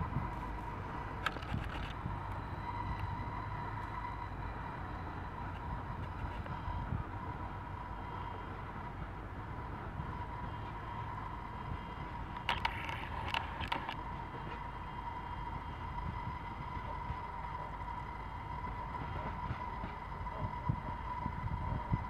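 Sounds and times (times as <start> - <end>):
train rumbling on the track: 0.0 - 22.0
sharp clicks: 12.3 - 14.0.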